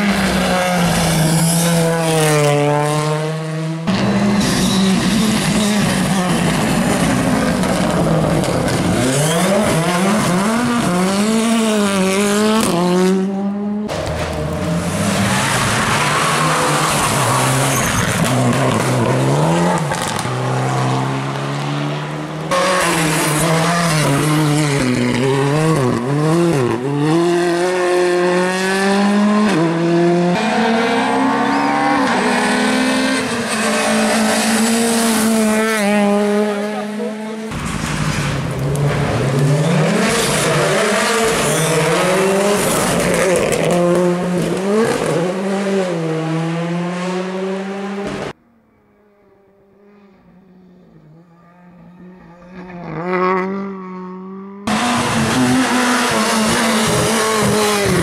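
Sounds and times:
rally car engines revving: 0.0 - 48.4, 49.2 - 58.0.

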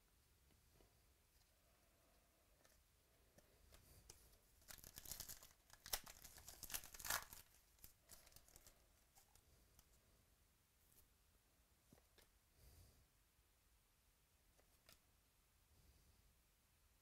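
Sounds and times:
foil wrapper tearing and crinkling: 4.6 - 8.8.

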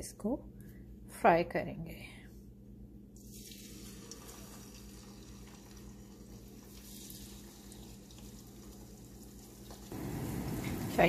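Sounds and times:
low steady hum: 0.0 - 11.0
chicken sizzling in oil: 3.2 - 11.0.

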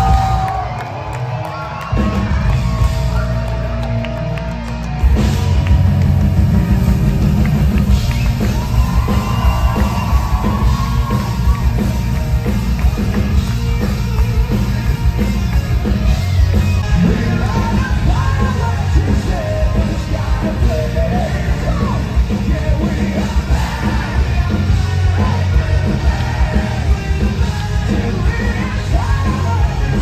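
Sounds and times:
live rock band: 0.0 - 30.0
loud drum beat: 4.9 - 30.0
singer's voice: 16.8 - 30.0.

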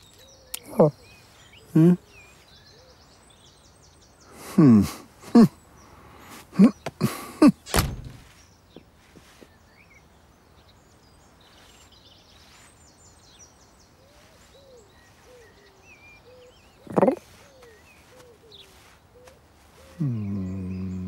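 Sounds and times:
faint bird chirps: 0.0 - 7.0, 8.2 - 21.0
door shutting with thunk: 7.7 - 8.4
soft low calls: 16.8 - 21.0.

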